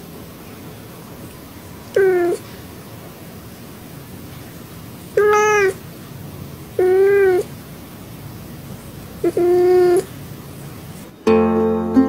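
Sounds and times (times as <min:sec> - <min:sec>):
cat meowing: 0:01.9 - 0:02.4, 0:05.1 - 0:05.8, 0:06.8 - 0:07.5, 0:09.2 - 0:10.2.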